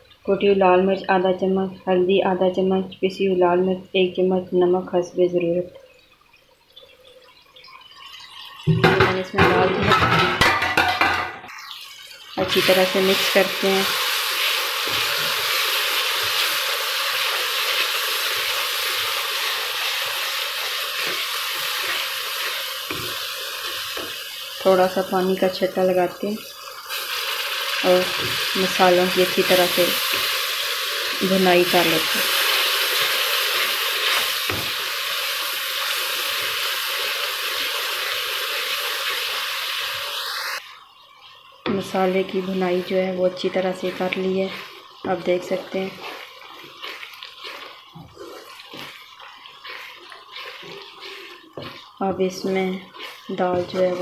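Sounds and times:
masala sizzling in hot oil: 0:00.0 - 0:54.0
wooden spatula stirring: 0:12.6 - 0:25.6, 0:41.7 - 0:54.0.

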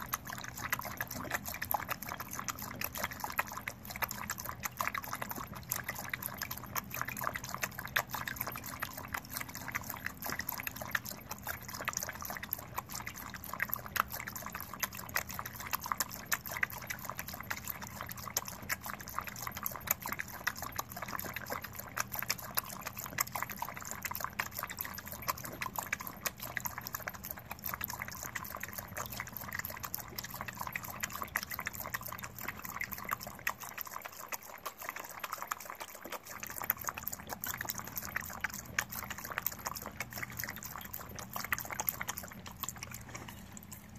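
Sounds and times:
dog lapping water from metal bowl: 0:00.0 - 0:43.9.

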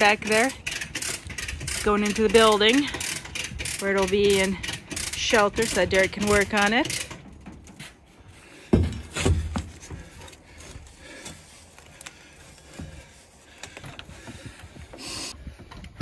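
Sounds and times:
heavy thumps: 0:08.6 - 0:10.3.

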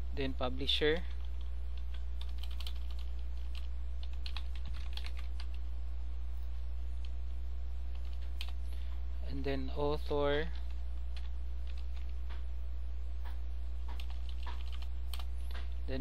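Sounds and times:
steady low hum: 0:00.0 - 0:16.0
computer keyboard typing: 0:00.9 - 0:05.6, 0:07.9 - 0:08.6, 0:10.3 - 0:12.3, 0:13.8 - 0:15.8.

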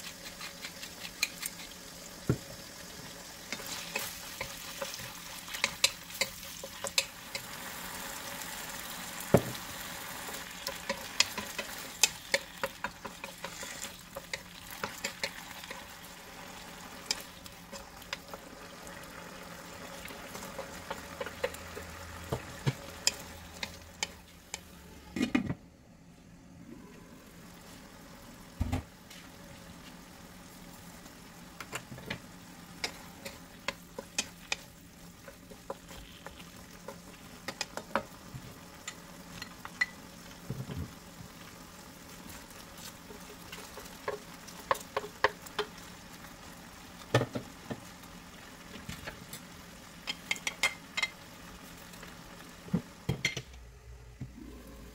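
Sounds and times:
spatula clacking and scraping pan: 0:00.0 - 0:01.8, 0:03.5 - 0:07.6, 0:09.5 - 0:15.9, 0:16.8 - 0:18.4, 0:20.0 - 0:25.4, 0:32.8 - 0:38.2
food sizzling in wok: 0:00.0 - 0:25.1, 0:27.2 - 0:53.4.

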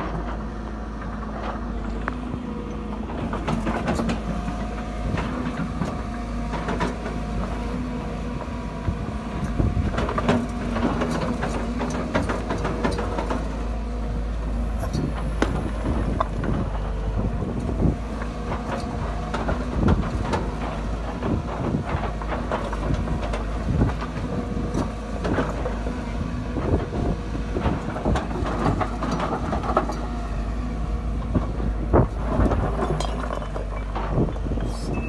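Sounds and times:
excavator diesel engine running: 0:00.0 - 0:35.0
rocks clattering against bucket: 0:31.3 - 0:34.9.

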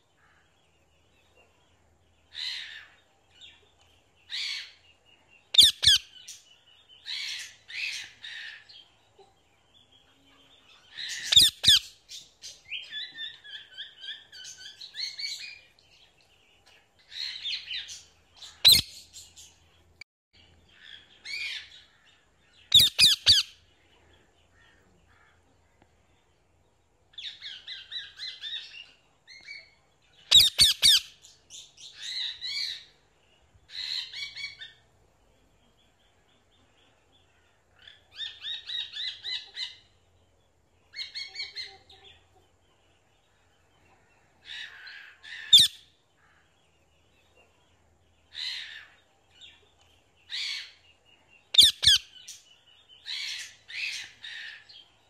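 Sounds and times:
parakeet screeching: 0:05.6 - 0:06.0, 0:51.6 - 0:52.0
parakeet warbling chatter: 0:05.6 - 0:06.0, 0:11.2 - 0:11.8, 0:51.6 - 0:52.0.

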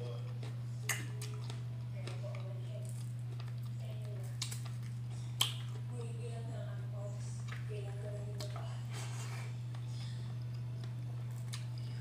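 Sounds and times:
steady low hum: 0:00.0 - 0:12.0
fingers squishing food: 0:00.2 - 0:06.1.

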